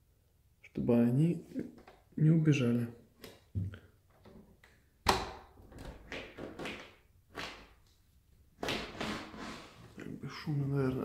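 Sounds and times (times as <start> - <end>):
door scraping and rattling: 8.9 - 9.8.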